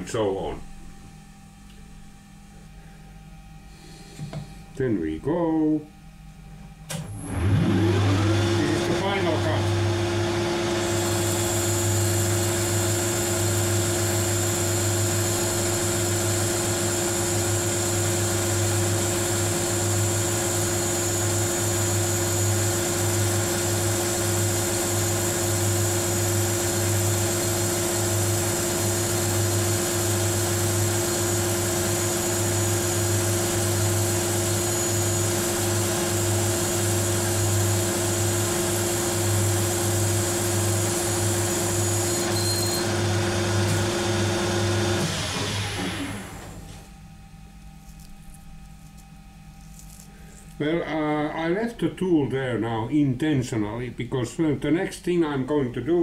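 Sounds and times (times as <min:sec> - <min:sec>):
lathe machine hum: 0:07.2 - 0:46.6.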